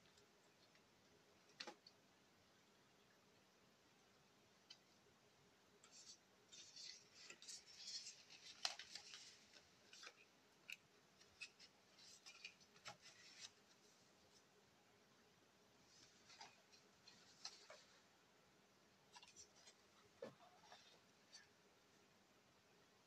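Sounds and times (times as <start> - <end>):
cardboard cards rustling and clicking: 5.9 - 13.6.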